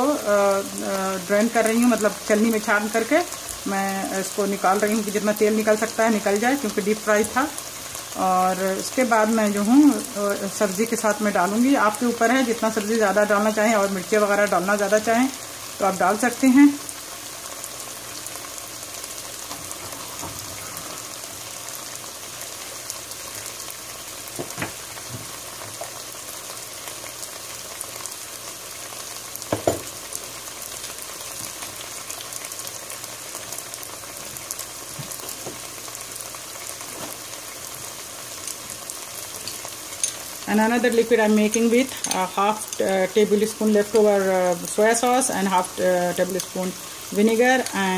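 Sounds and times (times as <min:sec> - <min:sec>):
vegetables sizzling in oil: 0:00.0 - 0:47.9
loud knocks: 0:29.5 - 0:29.9.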